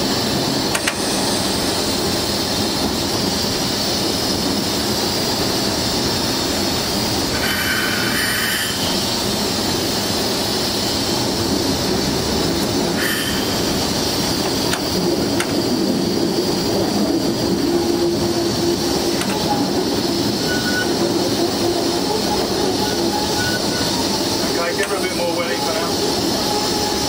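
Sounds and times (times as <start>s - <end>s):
locomotive engine running: 0.0s - 27.0s
high-pitched squeals: 17.6s - 27.0s.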